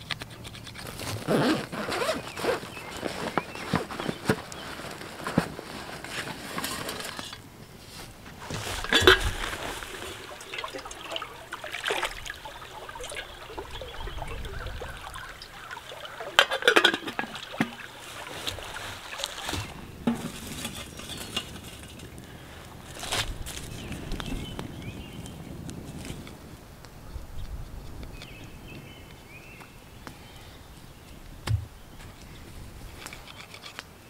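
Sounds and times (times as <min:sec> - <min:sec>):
water pouring into pot: 0:08.6 - 0:19.7
metal cup clinking on pot: 0:16.4 - 0:17.8.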